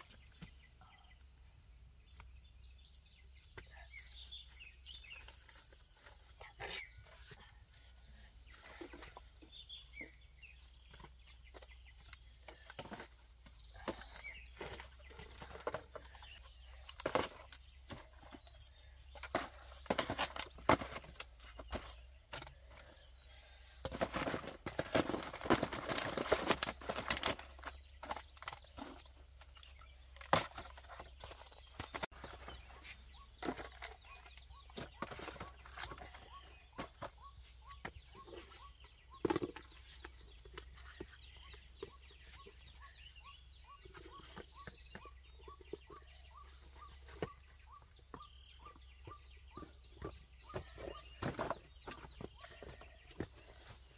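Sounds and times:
plastic bottles knocking and crinkling: 0:08.5 - 0:42.8, 0:49.5 - 0:53.9.

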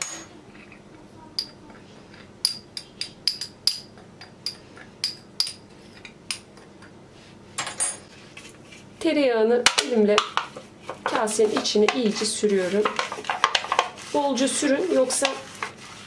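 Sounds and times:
spoon scraping bowl: 0:10.2 - 0:16.0.

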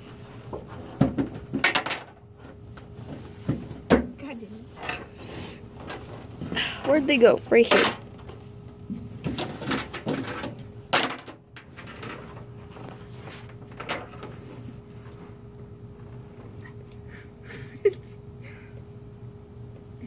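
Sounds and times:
faint hum: 0:00.0 - 0:20.0
small objects knocking and clattering: 0:01.0 - 0:02.2.

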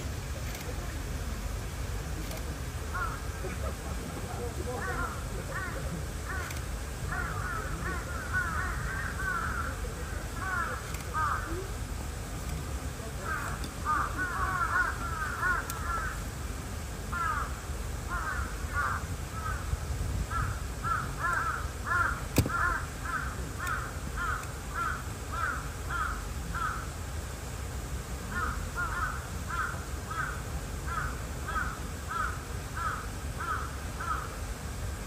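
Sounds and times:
crows cawing: 0:02.9 - 0:03.4, 0:04.7 - 0:11.6, 0:13.2 - 0:16.2, 0:17.1 - 0:26.9, 0:28.3 - 0:34.4
sharp click: 0:22.3 - 0:22.6.

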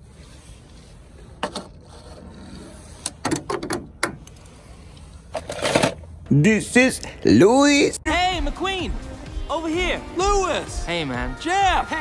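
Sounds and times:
toy car clattering on plastic slide: 0:05.3 - 0:06.0.

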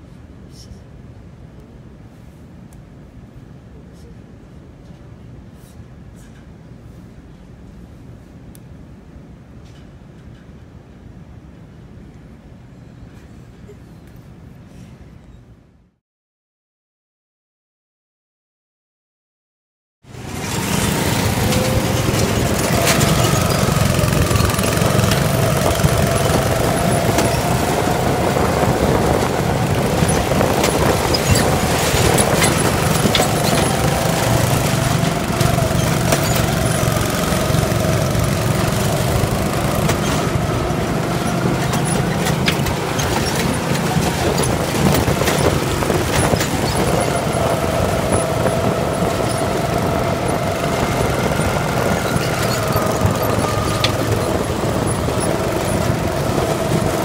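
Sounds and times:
propeller plane engine running: 0:20.1 - 0:57.0.

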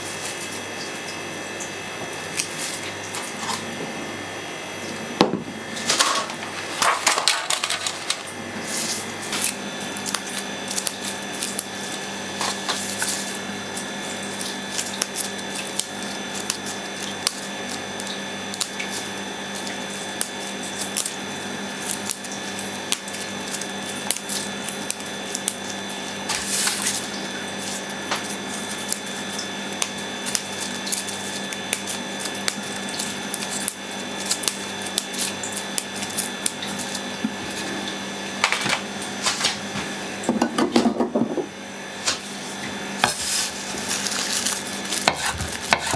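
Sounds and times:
steady hum: 0:00.0 - 0:45.9
leaves rustling: 0:43.1 - 0:45.8.

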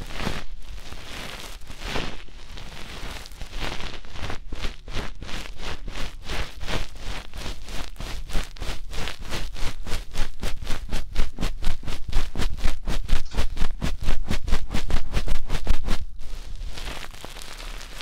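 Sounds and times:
scratchy rustling on microphone: 0:00.0 - 0:18.0
fast thumping on microphone: 0:07.4 - 0:16.2.

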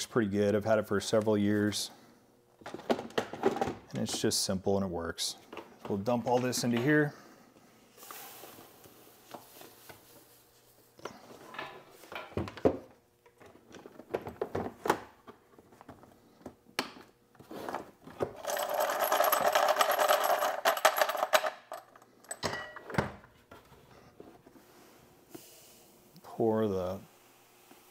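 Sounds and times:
brass cases clinking: 0:18.3 - 0:23.0.

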